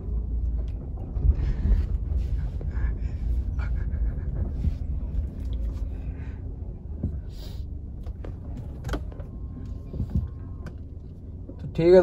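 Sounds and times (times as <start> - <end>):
car engine and tyres rumbling: 0.0 - 12.0.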